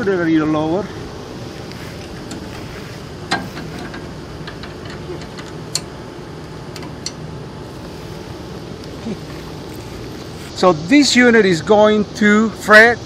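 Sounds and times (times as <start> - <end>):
mower engine running: 0.6 - 10.6.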